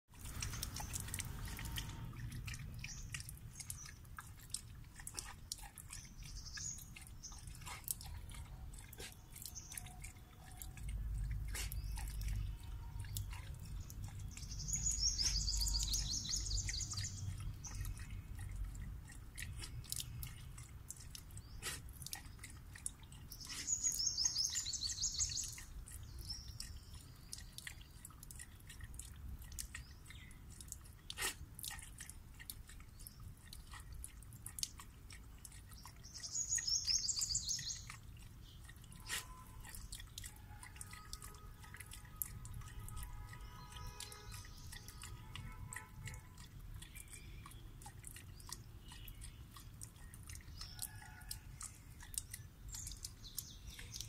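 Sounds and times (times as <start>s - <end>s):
dog lapping water: 0.1s - 54.0s
bird chirping trills: 11.8s - 18.0s, 23.3s - 28.0s, 35.8s - 40.1s, 40.8s - 47.7s.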